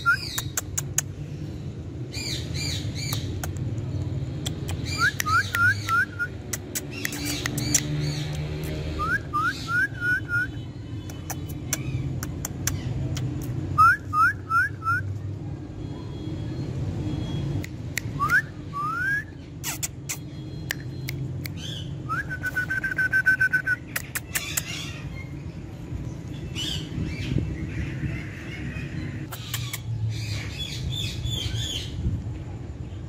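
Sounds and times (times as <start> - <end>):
sharp clicks: 3.0 - 8.8, 11.0 - 13.6
parakeet whistling: 9.0 - 10.6.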